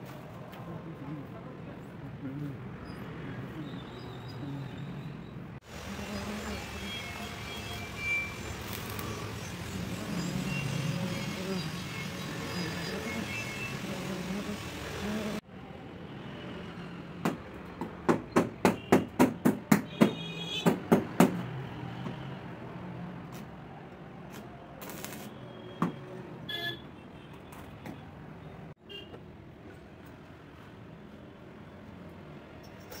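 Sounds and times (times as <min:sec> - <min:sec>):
hammer knocking on metal: 0:17.2 - 0:21.4.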